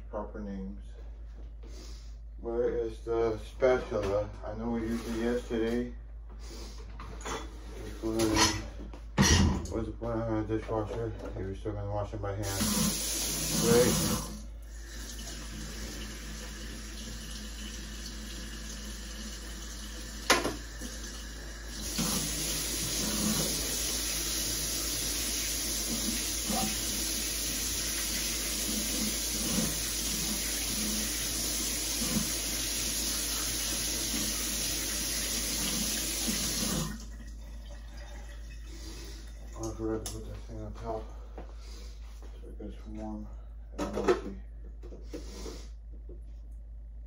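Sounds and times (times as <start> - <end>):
faucet running into sink: 12.4 - 40.1.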